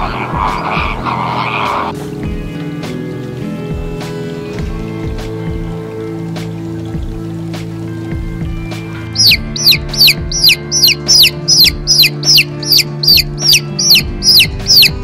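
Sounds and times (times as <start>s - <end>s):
background music: 0.0s - 15.0s
chick peeping: 9.2s - 15.0s.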